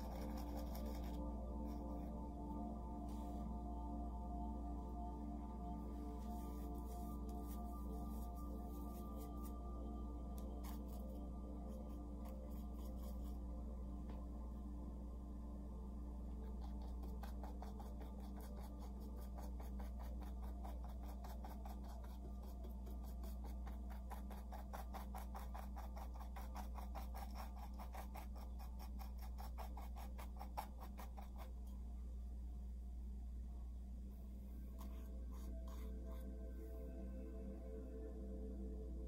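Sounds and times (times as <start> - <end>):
paintbrush dabbing on canvas: 0.0 - 1.8, 6.2 - 9.6, 16.4 - 31.7, 34.7 - 36.3
steady low hum: 0.0 - 39.0.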